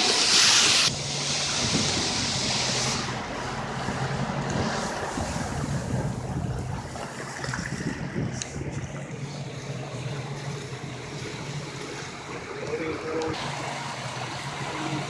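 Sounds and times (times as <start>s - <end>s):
motorboat engine drone: 0.0s - 15.0s
water rushing along hull: 0.0s - 15.0s
wind buffeting microphone: 0.9s - 13.3s.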